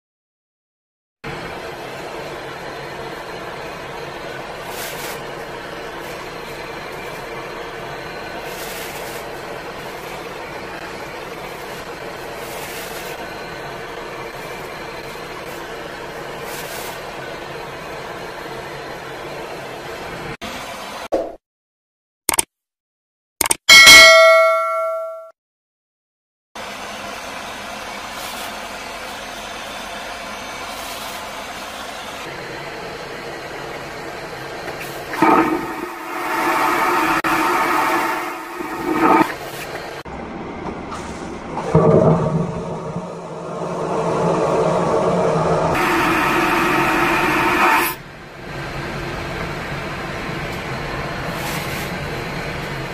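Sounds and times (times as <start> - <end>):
bell-like notification chime: 23.8 - 25.3
airliner engine and air noise: 30.7 - 52.9
airplane cabin drone: 32.2 - 51.3
vacuum toilet flushing: 34.6 - 40.0, 40.7 - 48.0
tonal whine: 35.2 - 48.0.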